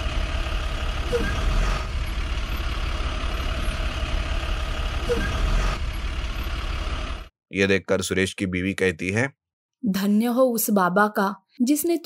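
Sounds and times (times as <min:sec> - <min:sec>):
backhoe engine running: 0:00.0 - 0:07.3.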